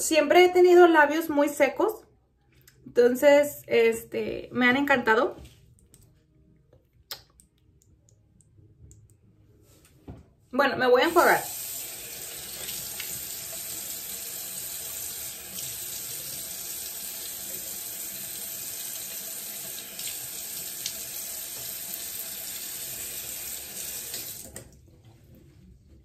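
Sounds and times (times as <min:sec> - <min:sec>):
sink tap running: 0:11.1 - 0:24.6.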